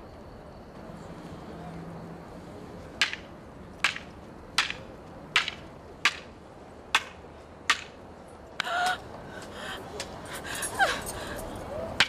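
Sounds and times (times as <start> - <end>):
wooden staves clacking: 3.0 - 8.0.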